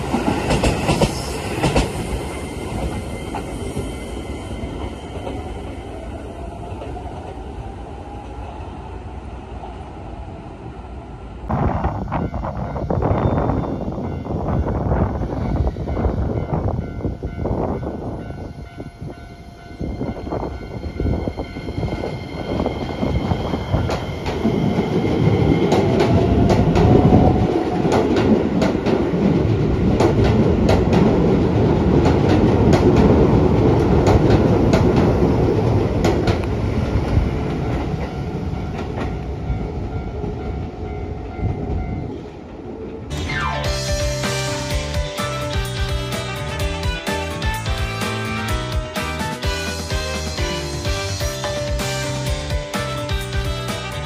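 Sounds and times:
train wheels clacking over rail joints: 0:00.0 - 0:02.2.

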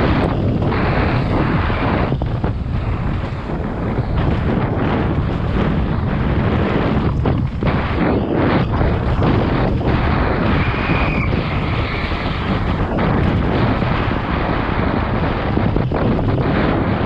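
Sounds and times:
mountain bike clattering over dirt: 0:00.0 - 0:15.0
wind buffeting microphone: 0:00.0 - 0:17.0
high squeal: 0:10.2 - 0:13.0.

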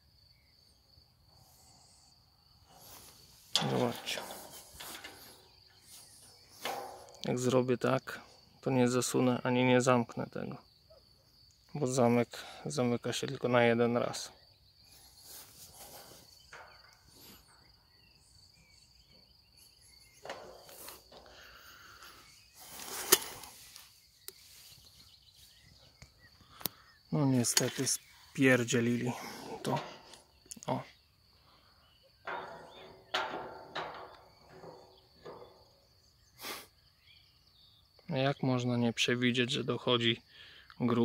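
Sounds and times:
insects chirring: 0:00.0 - 0:41.0
handling noise: 0:02.7 - 0:07.4, 0:19.8 - 0:26.1, 0:32.2 - 0:35.9
metal gate clanking against post: 0:02.7 - 0:07.8, 0:14.9 - 0:17.7, 0:18.5 - 0:23.6, 0:27.3 - 0:30.9, 0:31.6 - 0:36.3.

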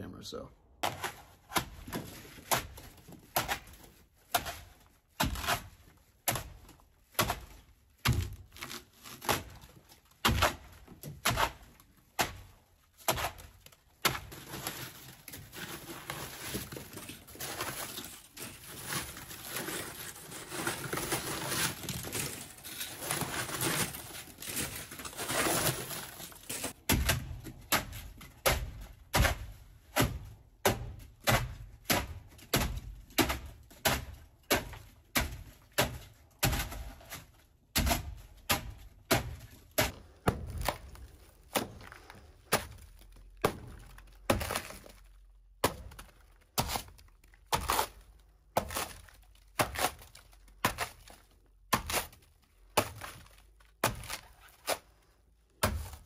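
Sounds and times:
foam crunching and scraping: 0:00.8 - 0:56.0.

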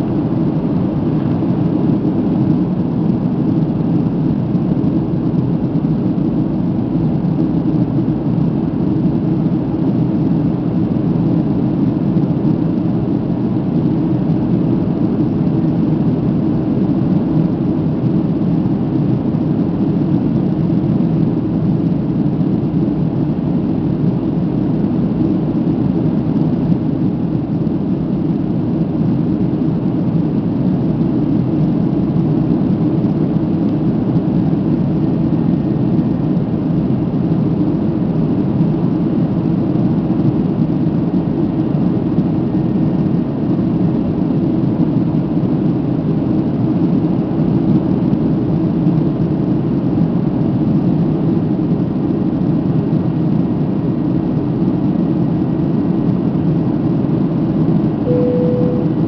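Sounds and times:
airplane cabin noise: 0:57.7 - 0:59.0.

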